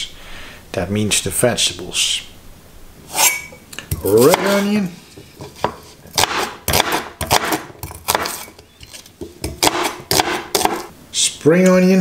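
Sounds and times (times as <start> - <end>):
cleaver chopping on wooden board: 5.6 - 8.5, 9.5 - 10.9.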